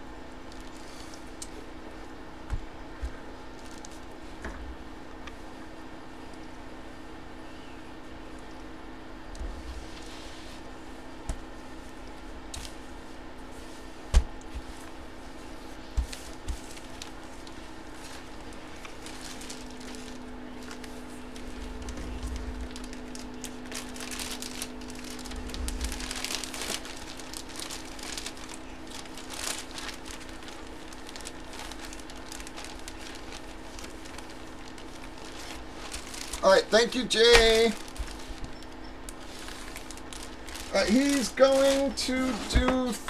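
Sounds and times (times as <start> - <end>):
steady low hum: 0.0 - 43.0
plastic wrapping crinkling: 3.5 - 4.1, 14.6 - 43.0.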